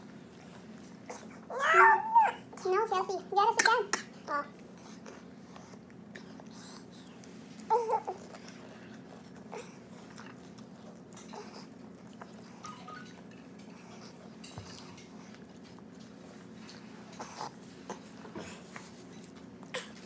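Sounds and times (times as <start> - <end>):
steady low hum: 0.0 - 20.0
utensils clicking at a bowl: 3.6 - 4.1
chewing: 4.0 - 20.0.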